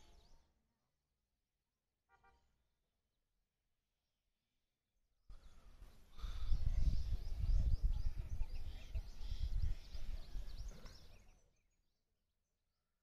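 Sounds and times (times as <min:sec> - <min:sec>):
birds chirping: 0:00.0 - 0:00.6, 0:05.3 - 0:12.1
wind buffeting microphone: 0:06.1 - 0:11.2.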